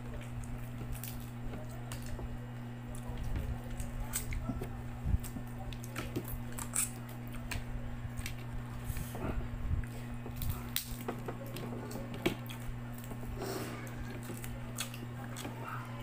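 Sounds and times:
crab shell clicking and cracking: 0:00.2 - 0:02.2, 0:05.2 - 0:08.5, 0:10.4 - 0:11.2
eating sounds: 0:02.8 - 0:16.0.

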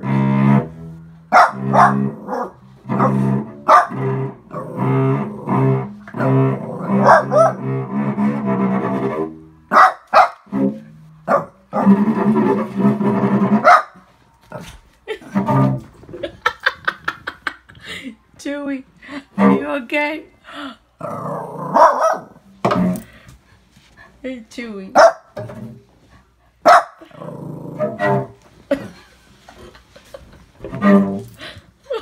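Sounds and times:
cello being bowed: 0:00.0 - 0:09.7, 0:10.5 - 0:14.5, 0:15.1 - 0:16.4, 0:19.0 - 0:23.9, 0:27.2 - 0:32.0
puppy barking: 0:01.3 - 0:04.0, 0:07.0 - 0:07.6, 0:09.7 - 0:10.5, 0:11.3 - 0:12.0, 0:13.6 - 0:14.0, 0:21.7 - 0:22.4, 0:25.0 - 0:25.4, 0:26.6 - 0:27.0.

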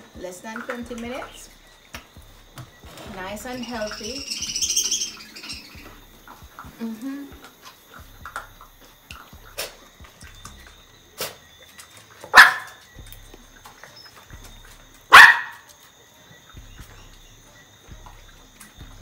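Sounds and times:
dog barking: 0:12.3 - 0:12.8, 0:15.1 - 0:15.7.

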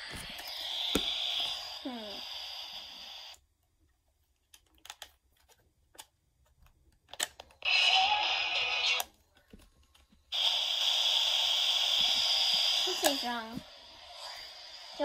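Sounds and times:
cassette player hiss: 0:00.0 - 0:03.4, 0:10.3 - 0:15.0.

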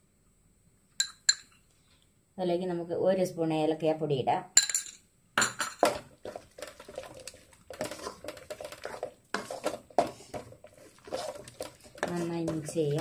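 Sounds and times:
wooden spatula scraping metal pan: 0:06.2 - 0:13.0.

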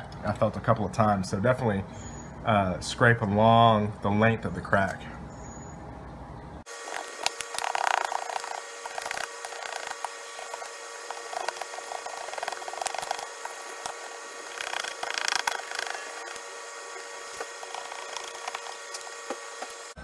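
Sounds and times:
razor scraper scraping glass: 0:06.7 - 0:20.0.

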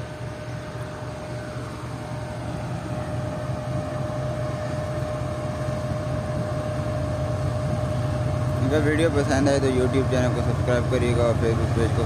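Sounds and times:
diesel locomotive engine rumble: 0:00.0 - 0:12.0
steady high whine: 0:00.0 - 0:12.0.

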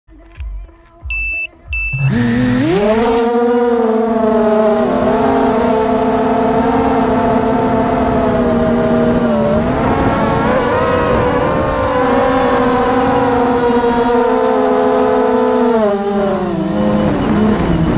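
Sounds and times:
short electronic beeps: 0:01.1 - 0:02.8
quadcopter propellers buzzing: 0:01.8 - 0:17.9.

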